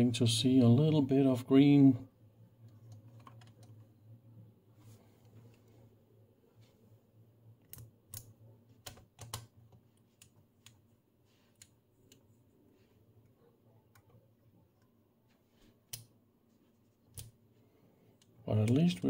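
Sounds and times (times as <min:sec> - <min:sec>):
faint low hum: 0:00.0 - 0:19.0
knobs and switches clicking: 0:07.6 - 0:10.9, 0:15.8 - 0:16.2, 0:17.0 - 0:17.4, 0:18.2 - 0:19.0.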